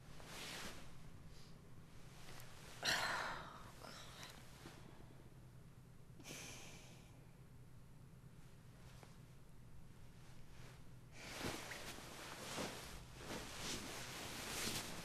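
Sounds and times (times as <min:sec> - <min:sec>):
faint room hum: 0:00.0 - 0:15.0
woman breathing softly: 0:02.3 - 0:05.4, 0:06.2 - 0:07.3, 0:11.1 - 0:12.8
woman sighing: 0:02.8 - 0:04.4.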